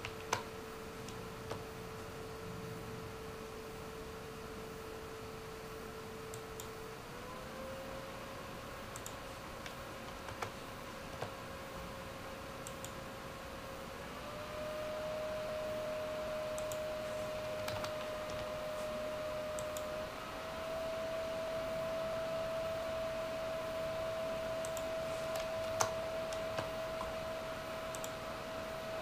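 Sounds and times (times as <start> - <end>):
scattered clicks: 0.0 - 2.1, 6.3 - 6.8, 8.9 - 10.6, 12.6 - 13.0, 16.5 - 18.5, 19.5 - 19.9, 24.6 - 27.2, 27.9 - 28.2
computer fans whirring: 0.0 - 29.0.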